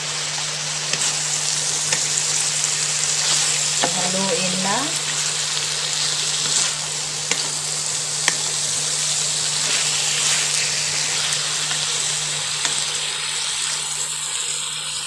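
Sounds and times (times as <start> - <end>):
food sizzling in a pan: 0.0 - 15.0
spatula clicking on pan: 7.3 - 7.6, 8.2 - 8.6.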